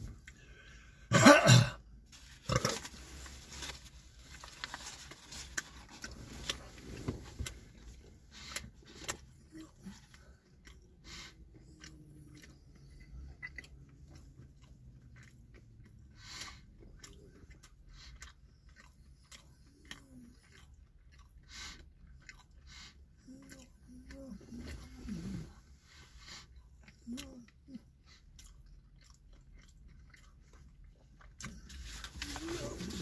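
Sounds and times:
person chewing food: 0.0 - 1.1, 1.8 - 33.0
foil wrapper crinkling: 2.2 - 6.6.

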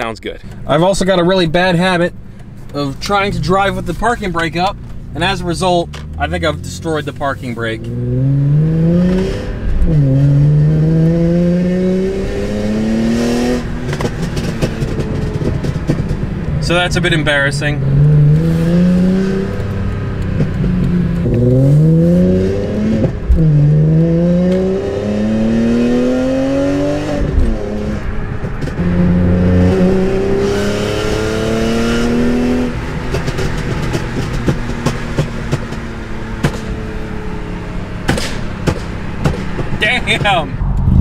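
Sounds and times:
exhaust crackles and pops: 0.0 - 11.2, 12.0 - 25.9, 26.7 - 41.0
car engine accelerating: 0.0 - 41.0.

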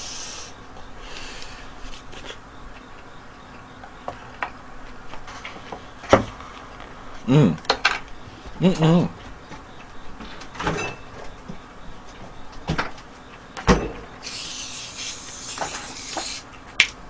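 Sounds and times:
man chewing food: 0.0 - 3.7.

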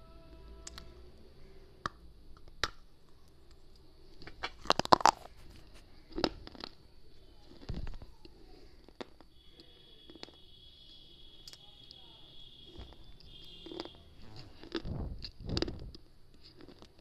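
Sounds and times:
person crunching clay: 1.4 - 10.4.

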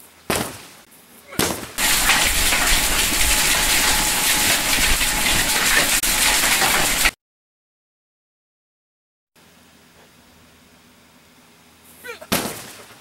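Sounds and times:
hail and rain pelting: 1.8 - 7.2.

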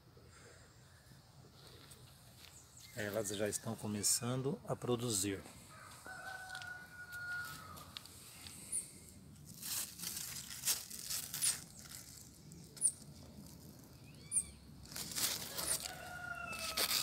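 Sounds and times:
leaves rustling and crinkling: 5.4 - 8.7, 9.3 - 17.0
rooster crowing: 5.7 - 8.0, 15.4 - 17.0
short high bird chirps: 14.1 - 14.6.

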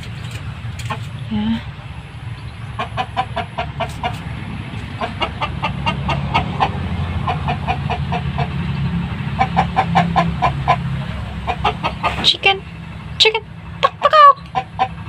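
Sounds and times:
chicken clucking: 2.7 - 12.6, 13.8 - 15.0.

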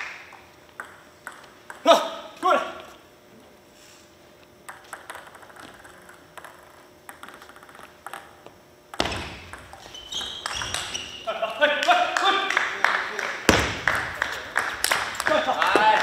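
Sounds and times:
table tennis ball tapping: 0.3 - 1.9, 4.6 - 10.9.

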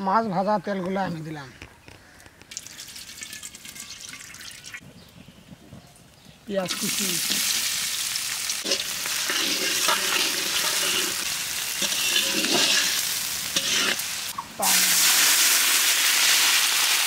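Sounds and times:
onions sizzling in hot oil: 6.5 - 17.0
water hissing in hot pan: 6.6 - 17.0
metal spatula scraping pan: 8.6 - 14.1.

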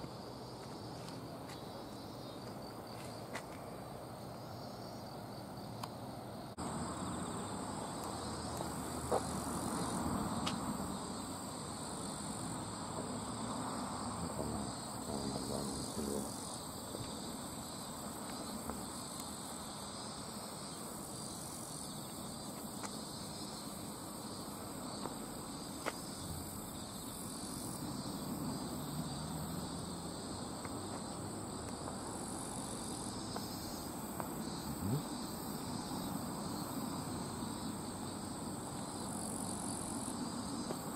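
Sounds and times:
insects trilling in grass: 0.0 - 5.8, 6.4 - 40.9.

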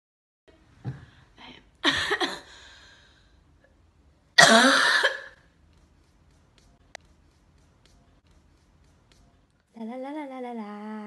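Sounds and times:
woman coughing: 1.8 - 2.5, 4.4 - 5.4.

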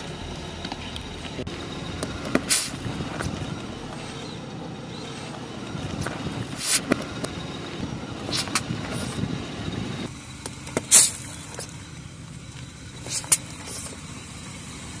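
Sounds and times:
car rumble: 0.0 - 15.0
tyre crunching gravel: 10.5 - 11.8.

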